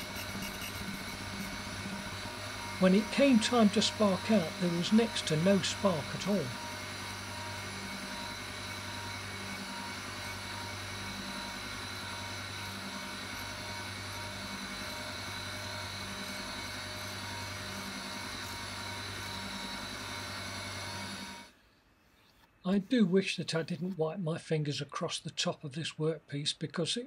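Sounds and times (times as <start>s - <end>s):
surface grinder humming: 0.0s - 21.5s.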